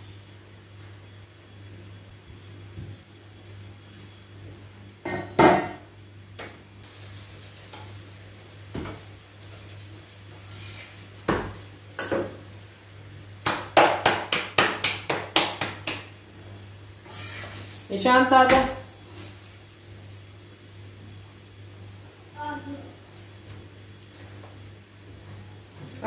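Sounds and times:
utensils knocking on griddle: 0:05.0 - 0:05.8, 0:11.2 - 0:12.5, 0:13.4 - 0:16.1, 0:18.4 - 0:18.8.

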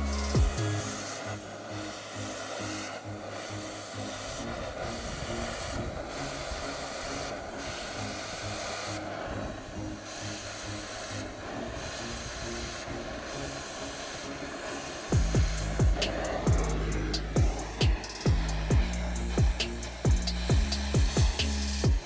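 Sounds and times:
background music with bassline: 0:00.0 - 0:06.4, 0:09.3 - 0:22.0
cutting torch flame roaring: 0:00.0 - 0:22.0.

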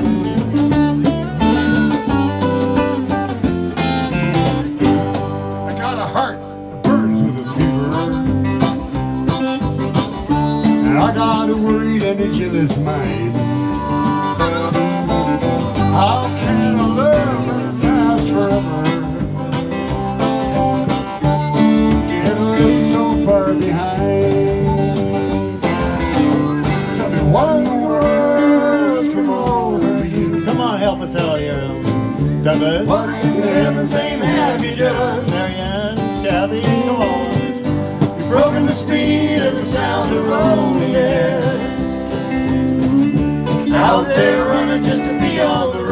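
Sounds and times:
bass guitar: 0:00.0 - 0:45.9
drums: 0:00.0 - 0:45.9
electric guitar: 0:00.0 - 0:45.9
harmonica lead: 0:00.0 - 0:45.9
strummed acoustic guitar: 0:00.0 - 0:45.9.

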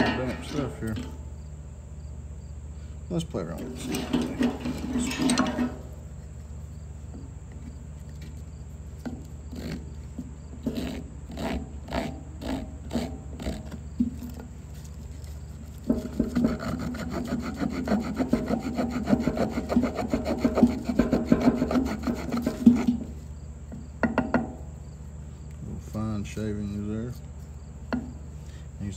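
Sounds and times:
pocket knife saw cutting wood: 0:10.6 - 0:13.8, 0:16.0 - 0:23.0.

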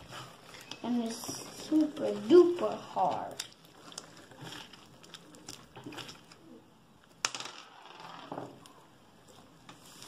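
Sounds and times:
slime squishing: 0:00.0 - 0:07.2.

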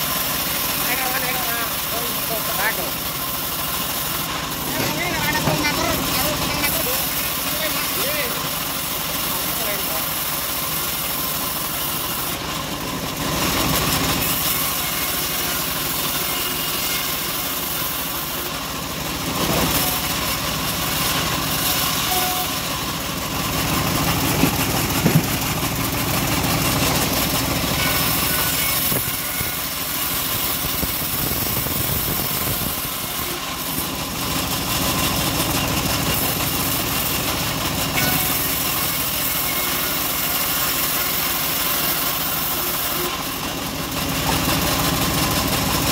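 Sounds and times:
band saw cutting wood: 0:00.0 - 0:45.9
sharp knocks: 0:24.3 - 0:25.5.

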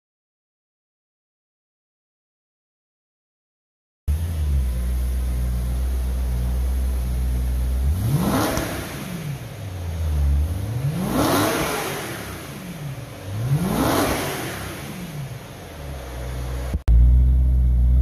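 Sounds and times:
car engine idling and revving: 0:04.1 - 0:18.0.

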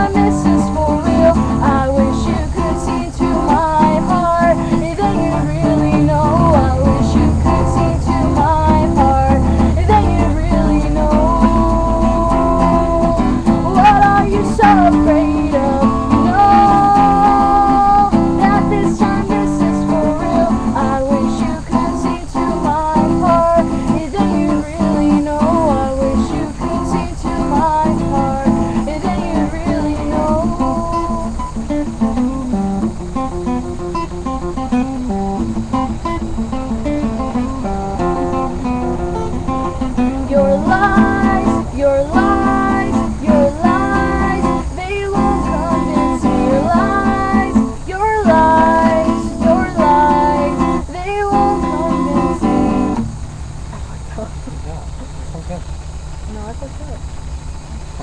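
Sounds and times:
woman singing: 0:00.0 - 0:32.6, 0:39.9 - 0:53.0
acoustic guitar strumming: 0:00.0 - 0:58.0.

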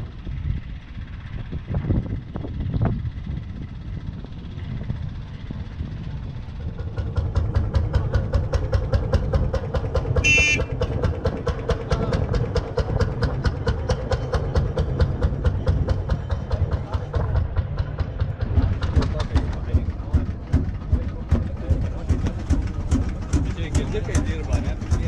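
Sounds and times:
tractor engine chugging past: 0:00.0 - 0:25.0
high toot: 0:10.2 - 0:10.9.

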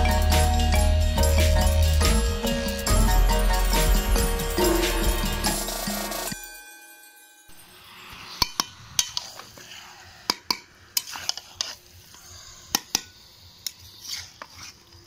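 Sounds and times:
metal spatula scraping a wok: 0:07.8 - 0:10.0, 0:10.9 - 0:13.2, 0:13.8 - 0:14.9.

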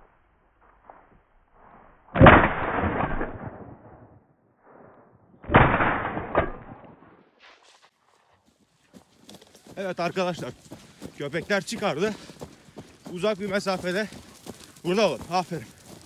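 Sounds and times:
shotgun shots with echo: 0:02.2 - 0:04.0, 0:05.4 - 0:07.0.

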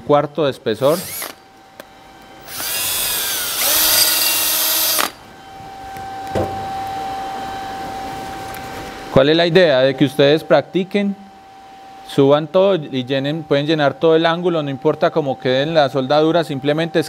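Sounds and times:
quiet steady hum: 0:00.0 - 0:17.0
cordless drill motor: 0:00.8 - 0:01.4, 0:02.4 - 0:05.2.

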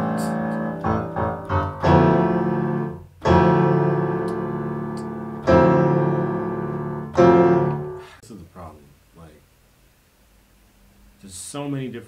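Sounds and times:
piano chords: 0:00.0 - 0:08.2.

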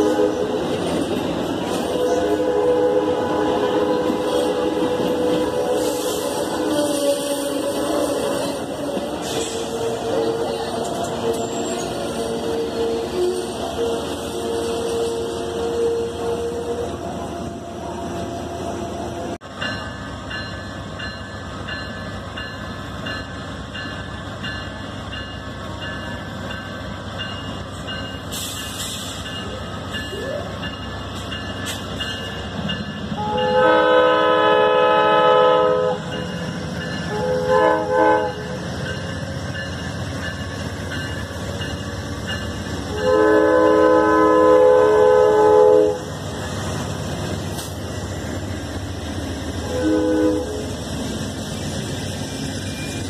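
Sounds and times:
train horn blasts: 0:00.0 - 0:00.6, 0:01.9 - 0:19.0, 0:33.2 - 0:36.2, 0:37.1 - 0:38.6, 0:42.9 - 0:46.1, 0:49.6 - 0:50.7
train engine and wheels rumble: 0:00.0 - 0:53.0.

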